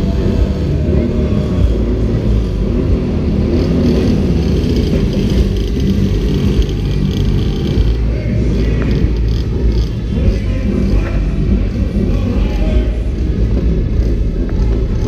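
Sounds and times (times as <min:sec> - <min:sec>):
low rumble: 0:00.0 - 0:15.0
motorcycle engines revving: 0:00.0 - 0:15.0.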